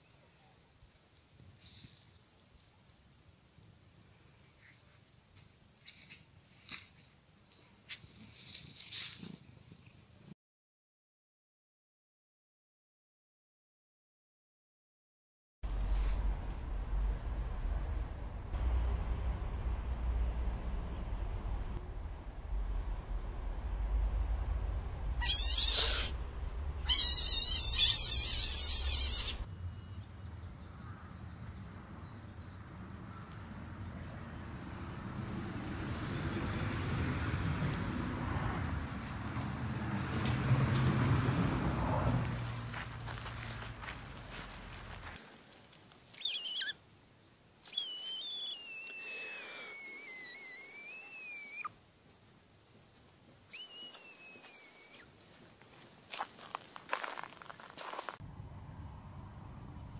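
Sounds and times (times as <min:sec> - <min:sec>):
frog screaming: 0:25.2 - 0:26.2, 0:26.8 - 0:29.4, 0:47.7 - 0:51.7, 0:53.5 - 0:55.0
kitten meowing: 0:25.2 - 0:26.2, 0:26.8 - 0:29.4.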